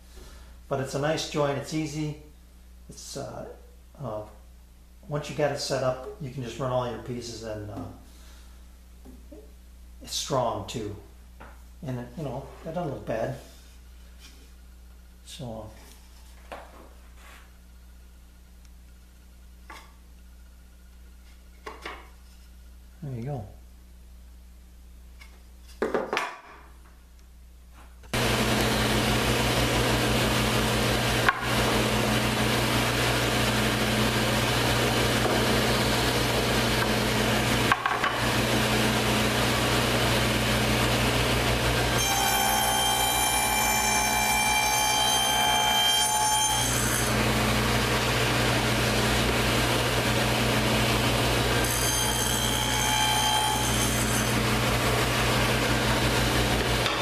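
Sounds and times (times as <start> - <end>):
table saw humming: 28.2 - 57.0
saw blade ringing whine: 42.0 - 47.5, 51.6 - 54.4.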